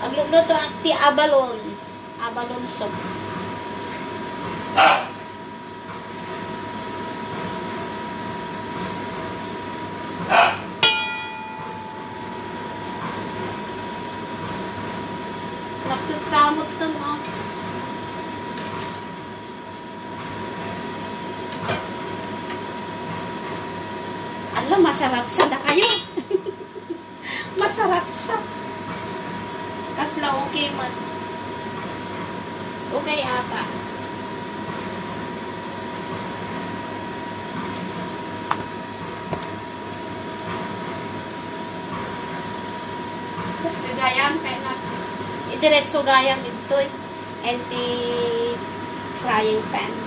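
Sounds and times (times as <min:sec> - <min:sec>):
range hood fan humming: 0:00.0 - 0:50.0
cookware clinking: 0:25.7 - 0:26.2.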